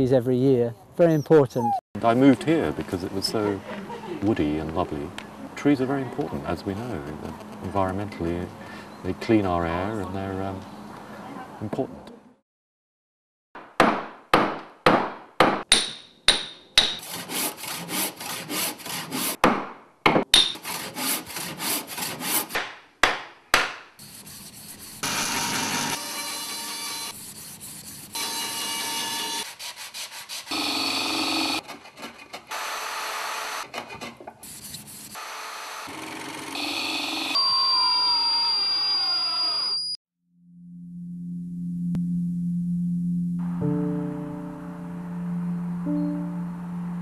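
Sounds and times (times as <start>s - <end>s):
steady wood cutting strokes: 17.0s - 19.4s, 20.6s - 22.6s, 24.0s - 37.3s.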